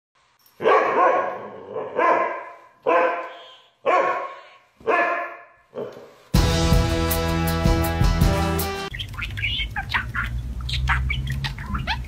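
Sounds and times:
husky barking: 0:00.6 - 0:06.1.

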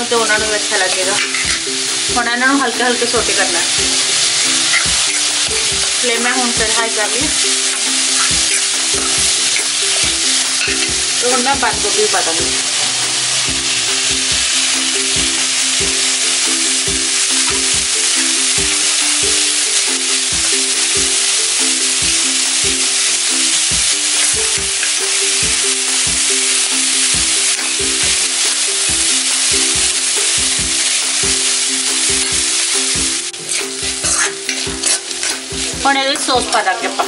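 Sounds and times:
simple tune: 0:00.0 - 0:37.0
spatula scraping wok: 0:00.0 - 0:37.0
vegetables sizzling in wok: 0:00.0 - 0:37.0.

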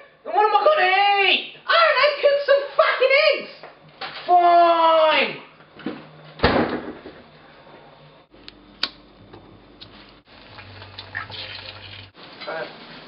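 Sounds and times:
egg frying in a pan: 0:10.2 - 0:13.0.

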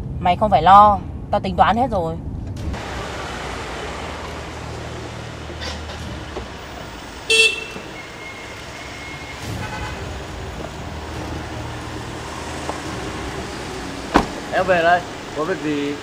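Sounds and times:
car engine idling: 0:02.6 - 0:16.0
car horn toot: 0:07.2 - 0:10.2.

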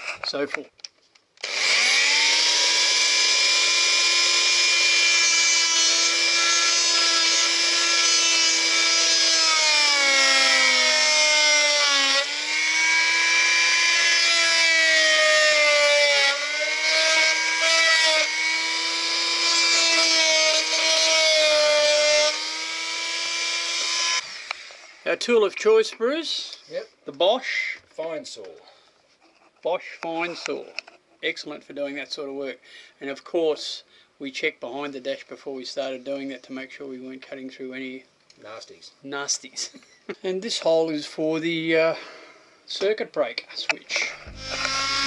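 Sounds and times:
multi-tool cutting wood: 0:01.4 - 0:25.1, 0:43.9 - 0:45.0.

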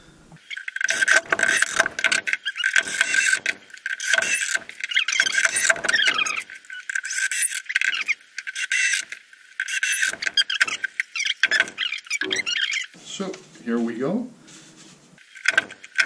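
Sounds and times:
cordless drill driving screws: 0:00.4 - 0:12.9.

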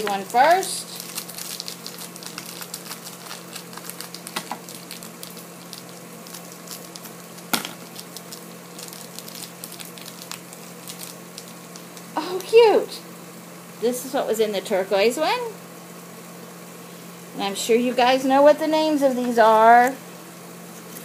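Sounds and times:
plastic wrapper crinkling: 0:00.0 - 0:12.6
steady low hum: 0:00.0 - 0:21.0.

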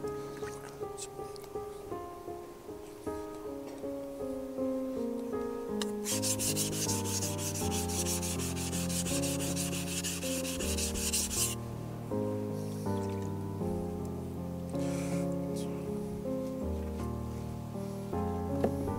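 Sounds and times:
background music with plucked notes: 0:00.0 - 0:18.9
knife rasping on whetstone: 0:06.0 - 0:11.6.

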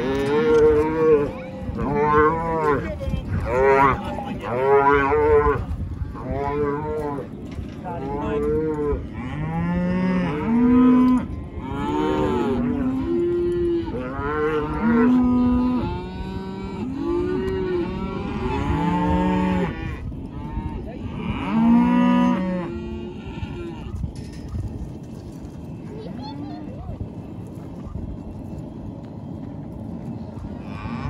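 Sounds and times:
cattle bawling and mooing: 0:00.0 - 0:24.0.

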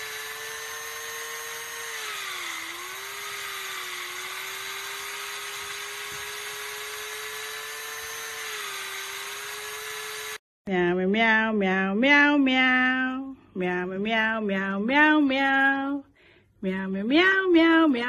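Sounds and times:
electric drill motor whining: 0:00.0 - 0:10.4.

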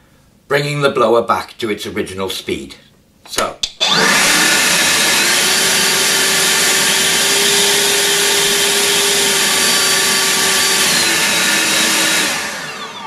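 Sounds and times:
leaf blower whining: 0:03.8 - 0:13.0.

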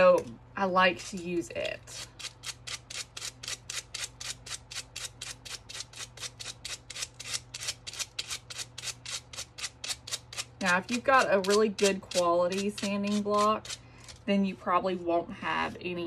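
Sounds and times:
sandpaper rasping strokes: 0:01.9 - 0:14.2.

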